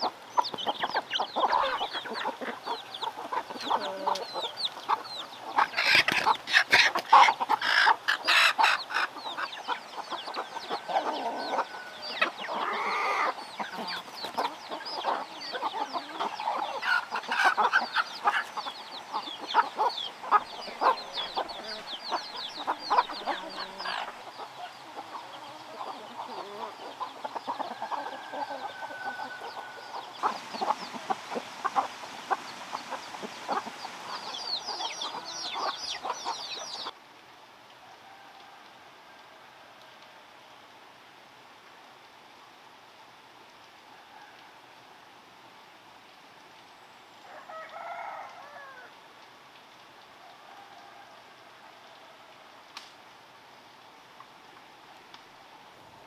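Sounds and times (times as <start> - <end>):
chicken drawn-out call: 0.0 - 37.0, 47.2 - 49.0
chickens clucking: 0.0 - 37.0
chicks peeping: 0.0 - 37.0.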